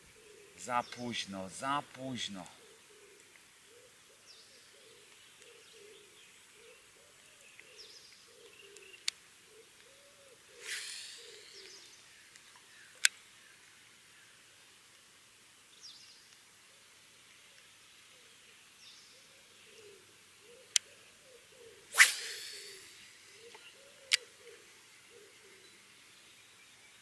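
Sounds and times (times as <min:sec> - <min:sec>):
birds chirping: 0:00.0 - 0:13.6, 0:18.0 - 0:27.0
low repeating call: 0:10.6 - 0:11.8, 0:21.9 - 0:23.2
whirring burst falling in pitch: 0:22.0 - 0:23.0.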